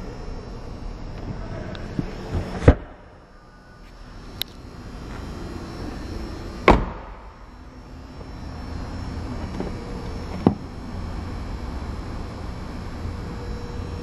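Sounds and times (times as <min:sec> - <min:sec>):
car door shutting thump: 0:06.6 - 0:07.2.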